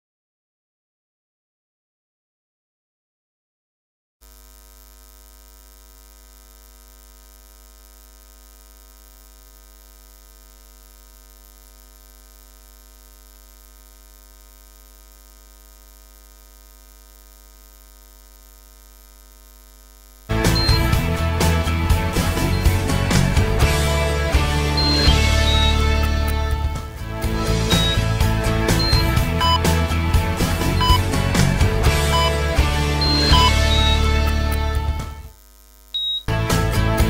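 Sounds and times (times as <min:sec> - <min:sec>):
electrical mains hum: 0:04.2 - 0:21.1, 0:31.8 - 0:36.3
loud music: 0:20.3 - 0:35.2, 0:36.3 - 0:37.0.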